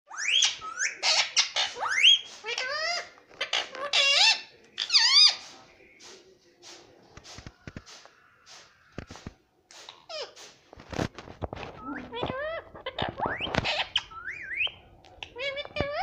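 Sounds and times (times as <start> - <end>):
parakeet chirps and squawks: 0.1 - 5.5, 11.8 - 16.0.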